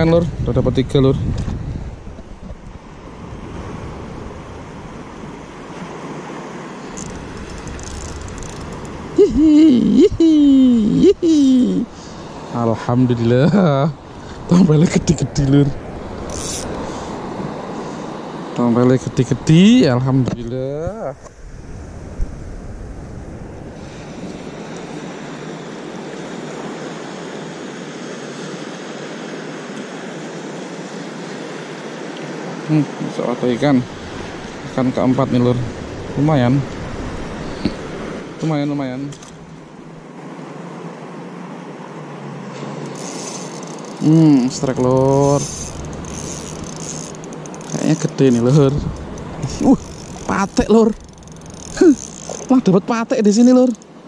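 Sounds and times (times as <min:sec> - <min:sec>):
wind buffeting microphone: 0:00.0 - 0:05.7, 0:19.4 - 0:24.6, 0:44.6 - 0:52.6
water gently lapping: 0:01.8 - 0:20.2, 0:20.9 - 0:54.0.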